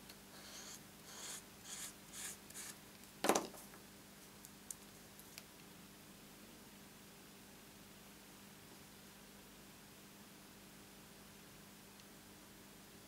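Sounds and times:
glue pen scratching on cardstock: 0.5 - 2.8.

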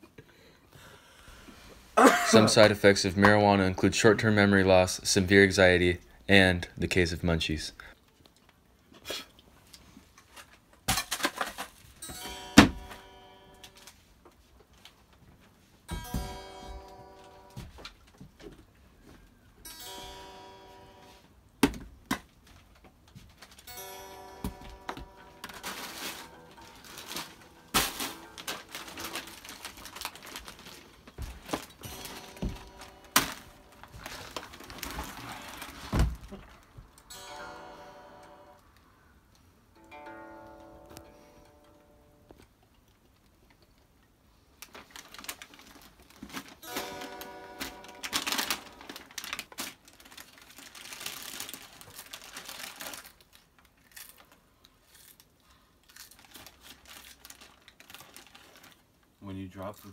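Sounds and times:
electric guitar chords: 19.7 - 21.2, 23.7 - 29.4, 31.8 - 34.0, 37.0 - 38.8, 39.8 - 42.4
packaging crinkling: 23.4 - 36.8, 44.6 - 59.1.

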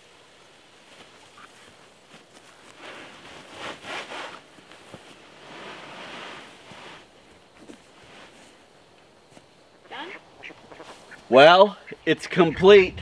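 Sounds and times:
strap rubbing on vinyl: 0.9 - 8.6.

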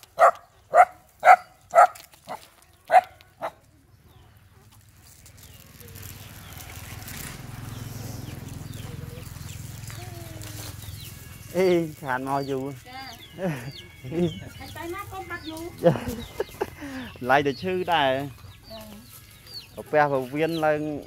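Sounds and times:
dog barking: 0.2 - 2.0, 2.9 - 3.6.

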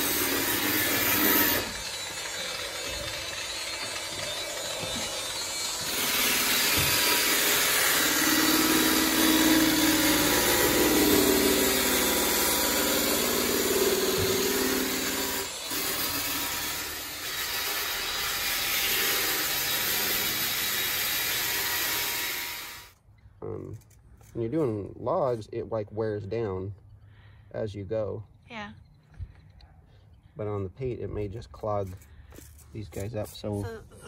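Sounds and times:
electric sanders on sheet metal: 0.0 - 23.0.

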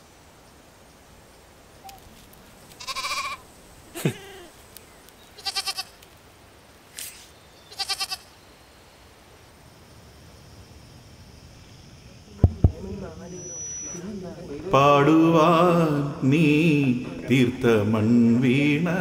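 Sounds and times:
goats bleating: 2.8 - 3.4, 5.4 - 6.0, 7.7 - 8.3.

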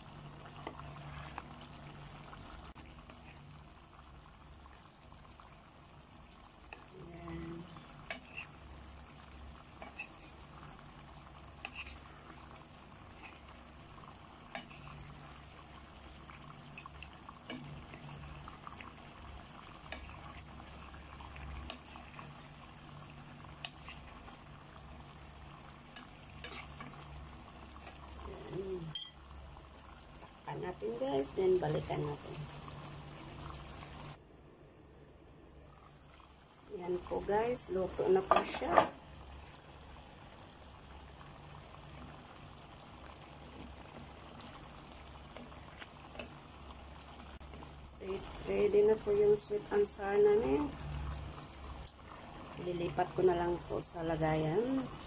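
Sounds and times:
sauce sizzling in a pan: 0.0 - 34.2, 35.7 - 55.0
low steady hum: 0.0 - 55.0
small ticks: 11.6 - 12.0, 14.5 - 15.0.

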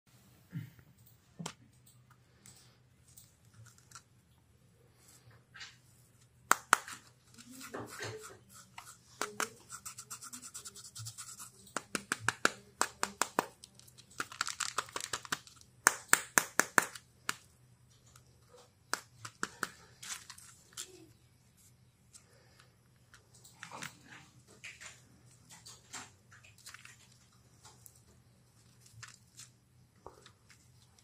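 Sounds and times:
fingernails scratching plastic egg: 7.3 - 13.4.

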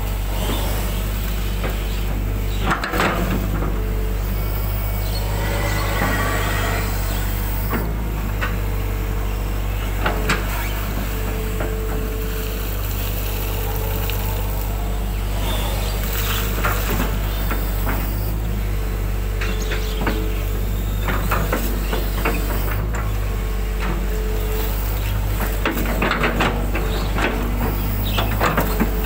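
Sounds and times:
excavator diesel engine running: 0.0 - 29.0
hydraulic whine: 0.0 - 29.0.

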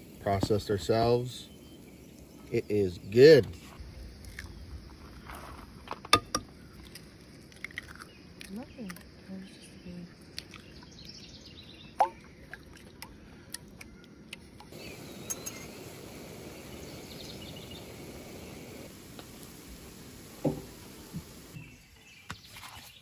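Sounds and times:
eggs frying in a pan: 0.0 - 3.4, 6.1 - 9.2, 14.2 - 21.6
eggshell cracking: 4.1 - 4.6, 6.0 - 9.2, 10.2 - 11.2.

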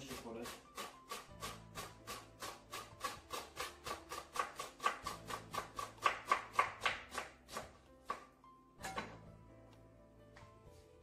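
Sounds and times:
knife chopping on wooden board: 0.0 - 8.3.

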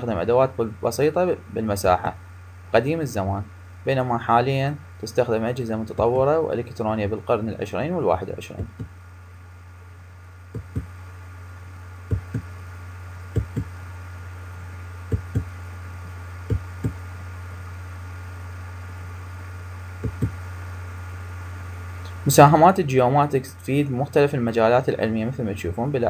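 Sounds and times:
low electrical hum: 0.0 - 26.0
soft low double knocks: 10.6 - 10.9, 12.1 - 12.5, 13.4 - 13.7, 15.1 - 15.5.

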